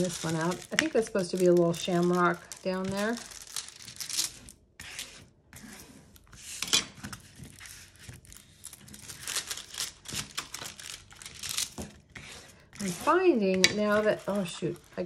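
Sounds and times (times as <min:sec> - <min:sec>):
plastic film crinkling: 0:00.0 - 0:04.6, 0:07.4 - 0:12.1, 0:12.8 - 0:15.0.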